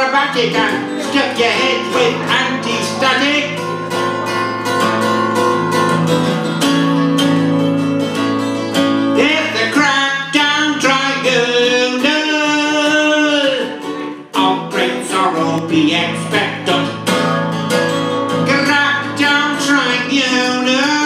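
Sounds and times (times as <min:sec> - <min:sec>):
man singing: 0:00.0 - 0:04.0, 0:09.1 - 0:17.2, 0:18.3 - 0:21.0
strummed acoustic guitar: 0:00.0 - 0:21.0.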